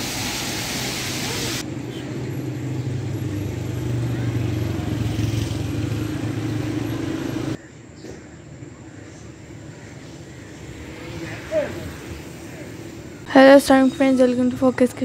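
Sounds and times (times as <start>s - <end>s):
heavy rain on street: 0.0s - 1.6s
low engine hum: 1.6s - 7.6s.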